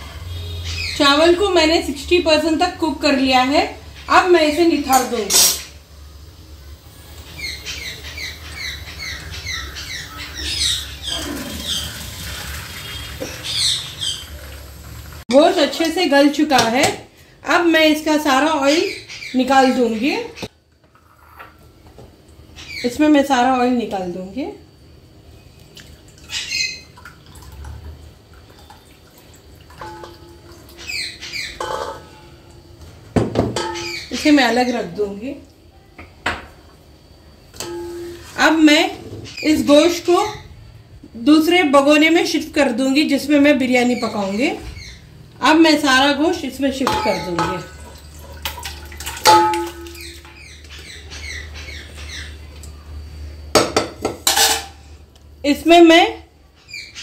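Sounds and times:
spoon scraping metal pot: 0:04.9 - 0:05.7, 0:31.5 - 0:32.4, 0:37.6 - 0:39.1
metal pot knock ringing: 0:29.8 - 0:30.5, 0:33.2 - 0:34.0, 0:37.6 - 0:38.2, 0:46.8 - 0:47.6, 0:49.3 - 0:50.1.

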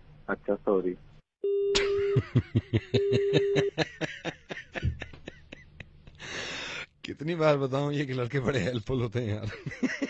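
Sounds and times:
phone busy tone beep: 0:01.4 - 0:01.8, 0:03.0 - 0:03.7.

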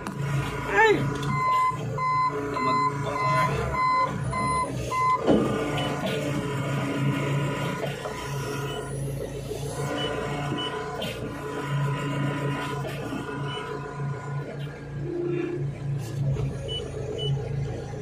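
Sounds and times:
diesel engine running: 0:00.0 - 0:18.0
reversing warning beeper: 0:01.0 - 0:06.0, 0:08.0 - 0:14.4, 0:16.6 - 0:17.4.

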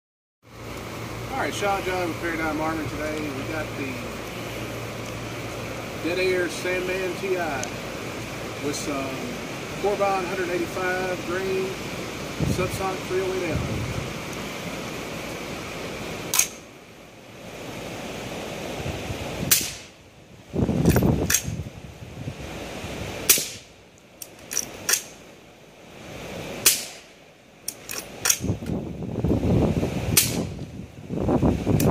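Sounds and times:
suppressed rifle shots: 0:19.5 - 0:19.9, 0:23.3 - 0:23.7, 0:26.6 - 0:27.1.

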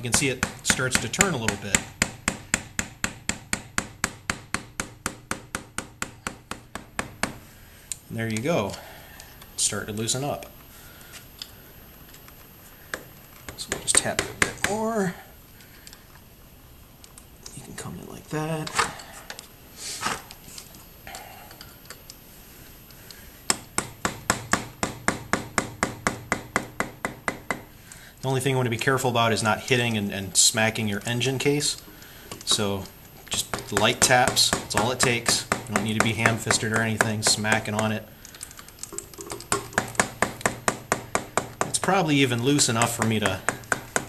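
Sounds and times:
screwdriver tapping metal canister: 0:31.7 - 0:44.0.

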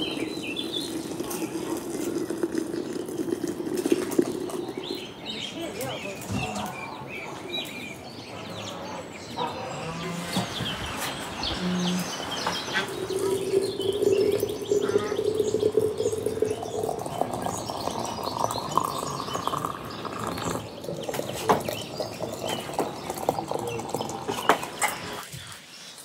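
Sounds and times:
birds chirping: 0:00.0 - 0:26.0
long steady tone: 0:11.5 - 0:20.5.

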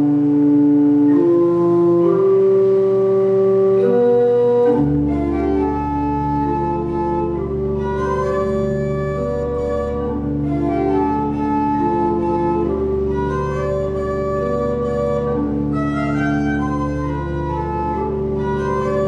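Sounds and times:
church pipe organ chords: 0:00.0 - 0:19.0
deep organ pedal note: 0:00.0 - 0:19.0.

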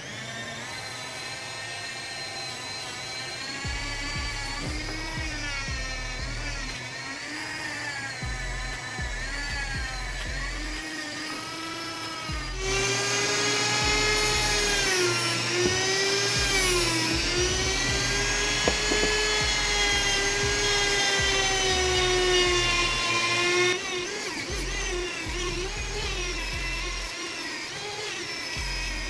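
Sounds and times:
rotary tool motor whine: 0:00.0 - 0:29.0.

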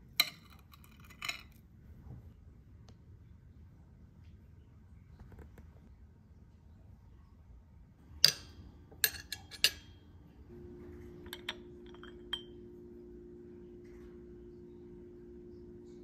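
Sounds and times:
low steady hum: 0:00.0 - 0:16.0
fork clinking on plates: 0:00.2 - 0:01.6, 0:08.2 - 0:10.0, 0:11.2 - 0:12.6
cup clinking on saucer: 0:08.1 - 0:10.1, 0:11.0 - 0:12.8.

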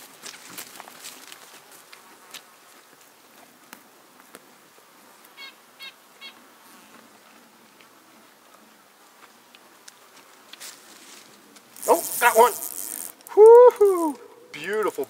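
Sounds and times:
insects buzzing: 0:10.0 - 0:15.0
short calls: 0:11.8 - 0:15.0.

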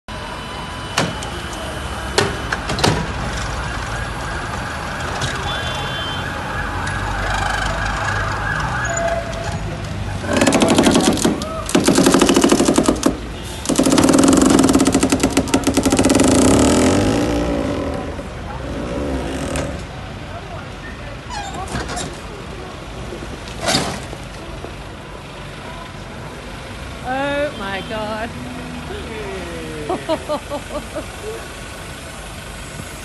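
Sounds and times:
city street traffic: 0:00.1 - 0:33.0
loud rapid rattling: 0:10.2 - 0:17.5.

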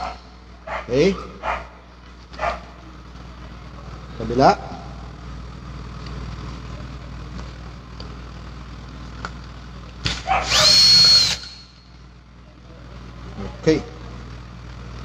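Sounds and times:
drill-driver whine: 0:10.0 - 0:11.9.

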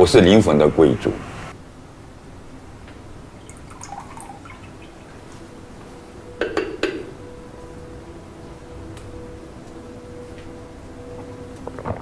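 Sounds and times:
teacup clinking: 0:03.4 - 0:05.2, 0:06.4 - 0:07.2
tea pouring trickle: 0:03.4 - 0:05.6.

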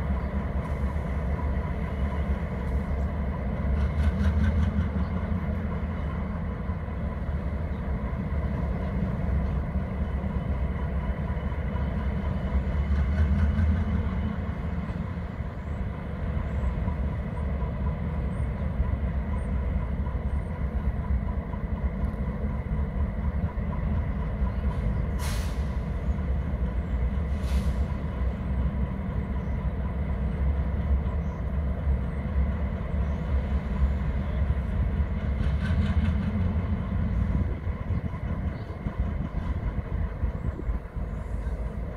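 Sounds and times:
diesel locomotive rumble: 0:00.0 - 0:41.9
air brake hisses: 0:25.1 - 0:25.9, 0:27.3 - 0:28.1.

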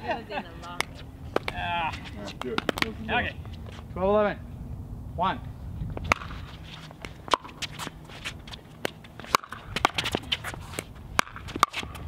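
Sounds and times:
shoe scuffs on court: 0:06.0 - 0:12.0.

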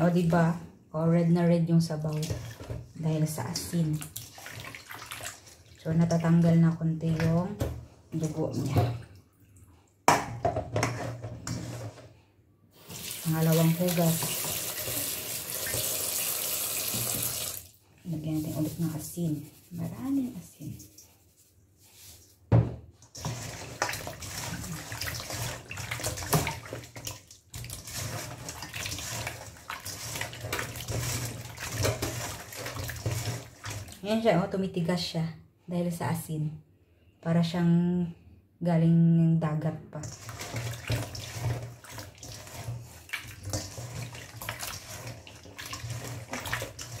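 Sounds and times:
hands sloshing fish in water: 0:03.8 - 0:06.2, 0:23.2 - 0:34.0, 0:40.1 - 0:47.0.

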